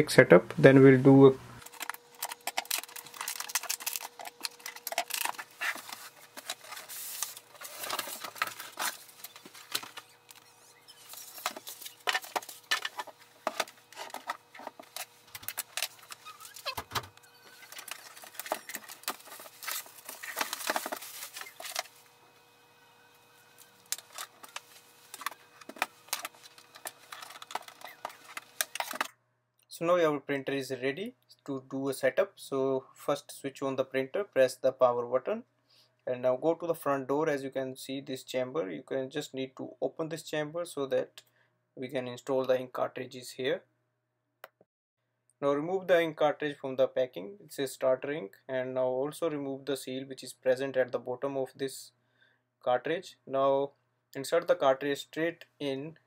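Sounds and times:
faint steady hum: 0.0 - 36.5
cardboard and plastic rustling: 1.6 - 22.2, 23.5 - 29.1.

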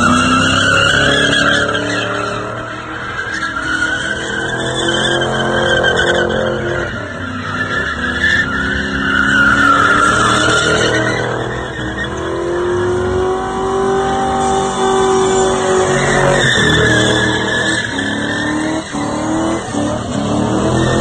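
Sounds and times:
car engine revving high: 4.1 - 21.0
tyres screeching: 14.2 - 21.0.

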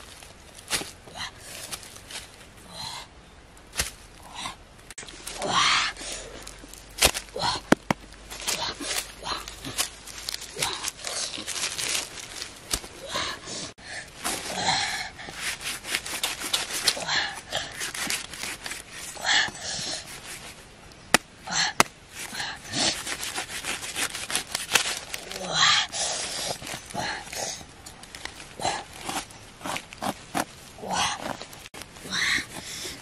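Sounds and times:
knife crunching through fruit rind: 28.6 - 31.5.

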